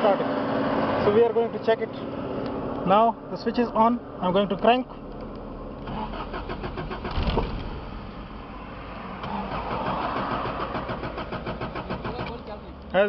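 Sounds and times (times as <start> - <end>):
starter cranking engine: 5.8 - 8.0, 9.2 - 12.7.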